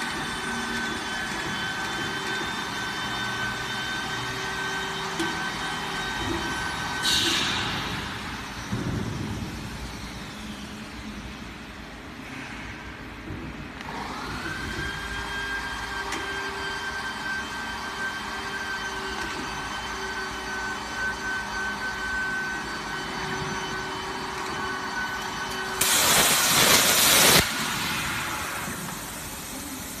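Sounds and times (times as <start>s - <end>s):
machine whine and hum: 0.0s - 30.0s
plasma arc cutting hiss: 25.8s - 30.0s.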